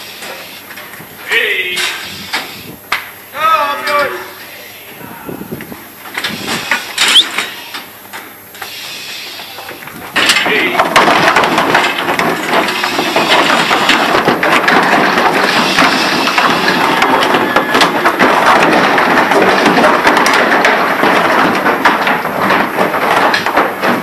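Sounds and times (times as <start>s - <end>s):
hooves clattering on slatted ramp: 9.4s - 24.0s.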